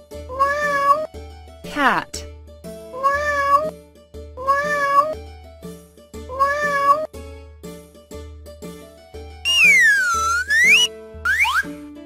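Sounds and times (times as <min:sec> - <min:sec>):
cat meowing: 0:00.3 - 0:01.1, 0:02.9 - 0:03.7, 0:04.4 - 0:05.2, 0:06.3 - 0:07.1
children's tune with bass: 0:06.2 - 0:07.2, 0:09.4 - 0:12.0.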